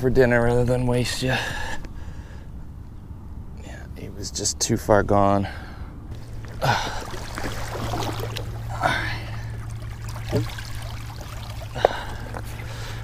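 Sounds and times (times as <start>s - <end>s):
low hum: 5.8s - 13.0s
footsteps on rocky bank: 6.1s - 8.6s
river water against rocks: 6.1s - 13.0s.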